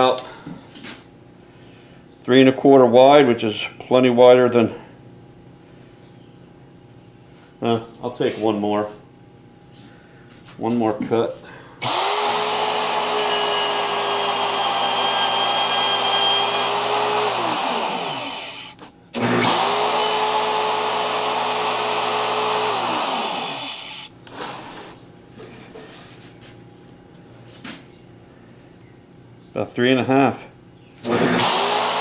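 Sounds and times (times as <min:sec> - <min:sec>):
router motor whine: 0:11.8 - 0:24.7, 0:31.0 - 0:32.0.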